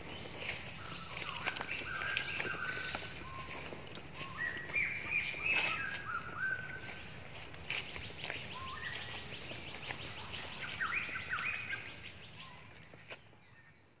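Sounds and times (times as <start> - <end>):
whistled bird calls: 0.4 - 7.0, 10.2 - 12.8.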